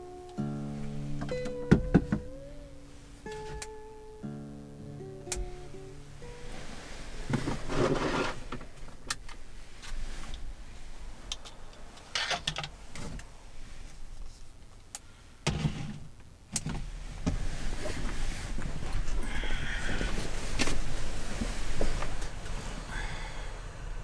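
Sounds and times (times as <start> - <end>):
blanket and bedding rustling: 6.1 - 12.0, 16.9 - 23.0.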